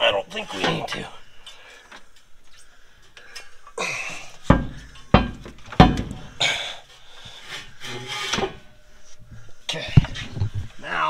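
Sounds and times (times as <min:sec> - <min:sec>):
metal clunks: 0:04.4 - 0:06.4, 0:08.1 - 0:08.8
metal scraping: 0:07.3 - 0:10.7.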